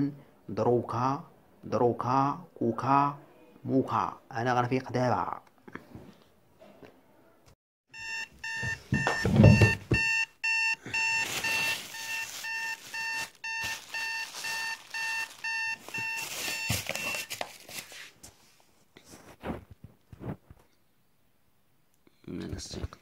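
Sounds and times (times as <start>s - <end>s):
phone alarm beeping: 8.0s - 17.4s
thump: 8.9s - 10.0s
blanket rustling: 11.0s - 19.6s.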